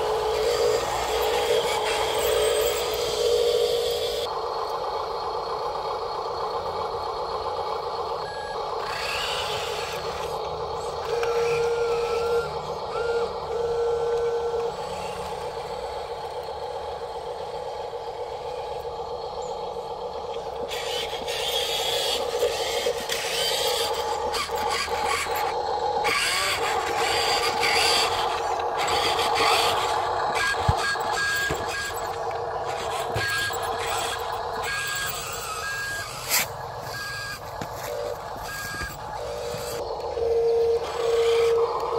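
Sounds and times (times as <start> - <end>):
wheels scraping and rolling on concrete: 0.0 - 4.8, 8.3 - 41.9
model truck motor hum: 0.0 - 41.9
simulated engine noise: 0.0 - 41.9
reversing alarm beeps: 8.2 - 8.7, 11.0 - 14.9, 34.7 - 41.9.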